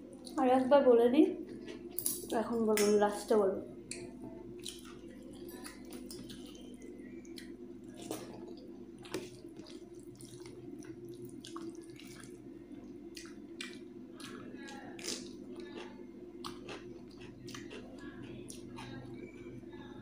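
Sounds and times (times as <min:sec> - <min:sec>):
chewing: 0:03.9 - 0:19.9.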